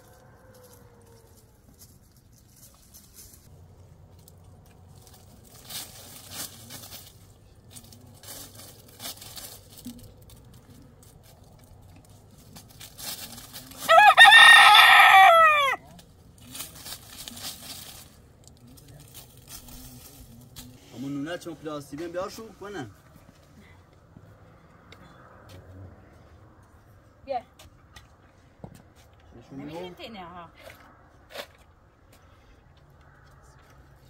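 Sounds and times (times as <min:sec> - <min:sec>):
rooster crowing: 0:00.0 - 0:01.7, 0:13.8 - 0:15.8
faint rustles: 0:00.0 - 0:13.9, 0:15.9 - 0:29.3.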